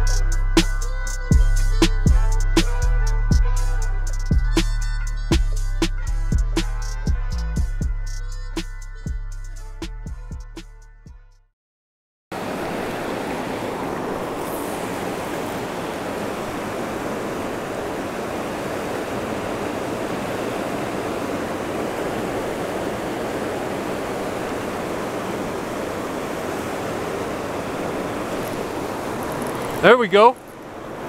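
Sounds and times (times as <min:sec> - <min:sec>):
river rushing through rapids: 0:12.4 - 0:31.0.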